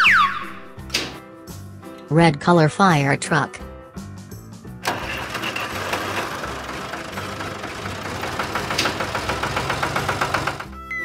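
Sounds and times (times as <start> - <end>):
heavy vehicle engine clattering: 4.8 - 10.8.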